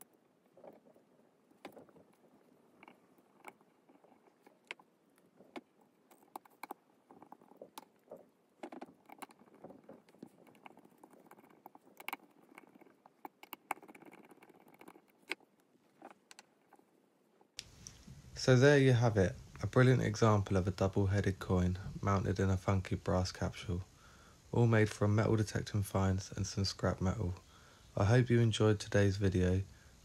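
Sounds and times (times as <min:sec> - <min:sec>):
small metal clicks and taps: 0:01.6 - 0:16.8.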